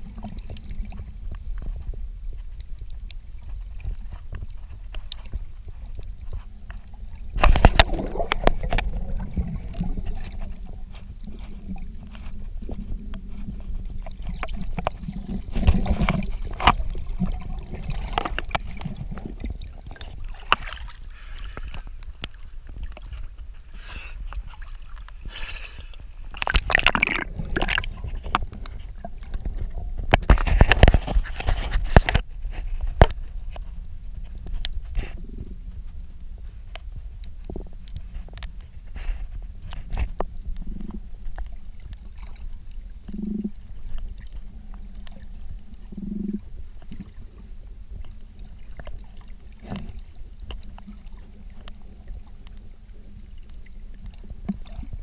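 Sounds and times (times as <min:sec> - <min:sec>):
underwater rumble of water: 0:00.0 - 0:55.0
gurgling splashy bursts: 0:26.4 - 0:28.0.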